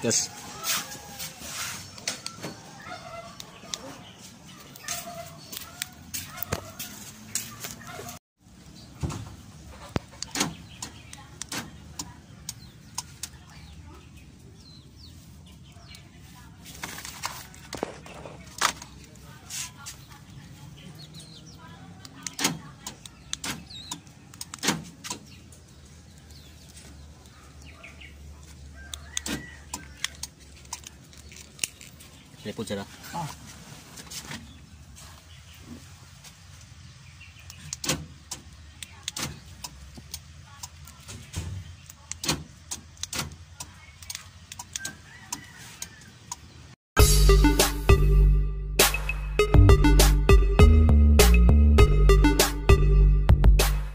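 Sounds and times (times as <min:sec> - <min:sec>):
loud music: 0:47.0 - 0:53.9.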